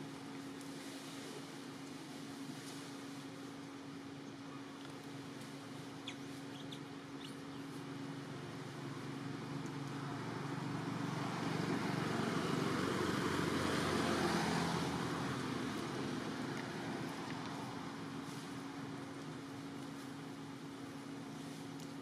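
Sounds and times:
road vehicle passing: 7.9s - 19.5s.

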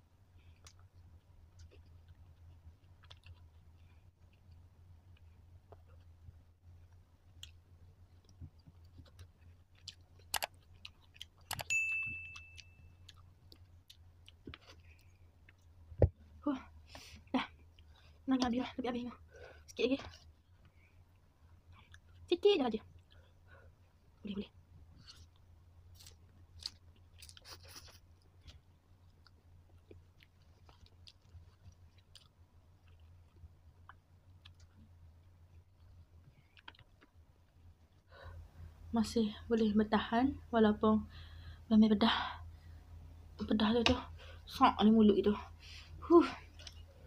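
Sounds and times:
noodles being chewed: 0.4s - 11.7s, 12.3s - 16.3s, 24.8s - 38.1s
bell ding: 11.7s - 12.8s.

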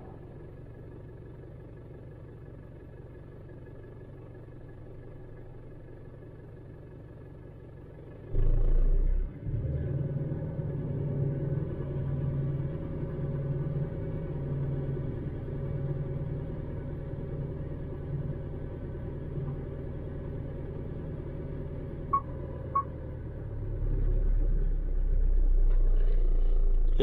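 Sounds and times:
diesel engine idling: 0.0s - 8.4s, 10.2s - 27.0s
short beeps: 22.1s - 23.0s.

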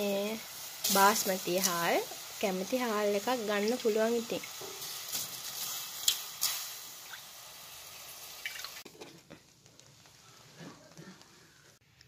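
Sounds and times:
water splashing in a pot: 3.6s - 8.9s.

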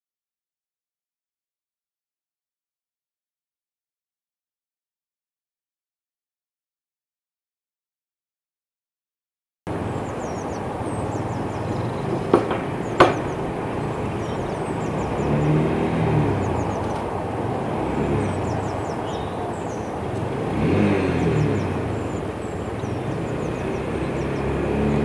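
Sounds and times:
birds chirping: 9.7s - 25.0s
road traffic rumble: 9.7s - 25.0s
vehicle passing: 9.7s - 25.0s
sharp knocks: 12.0s - 13.6s.

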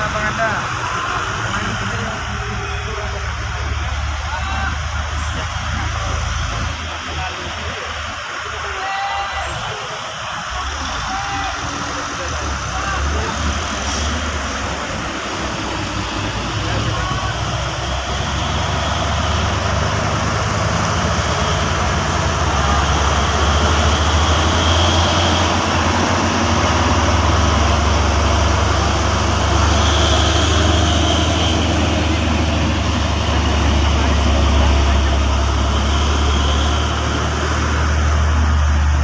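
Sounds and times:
diesel engines running: 0.0s - 39.0s
trucks and cars driving past: 0.0s - 39.0s.

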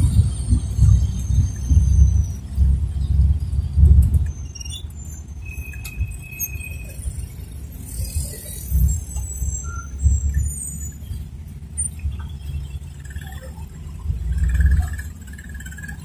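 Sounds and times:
minibus engine: 0.0s - 16.0s
traffic rumble: 0.0s - 16.0s.

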